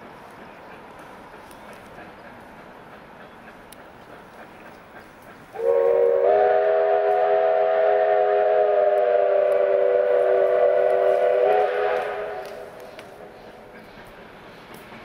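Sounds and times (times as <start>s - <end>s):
locomotive whistle chord: 5.6s - 12.8s.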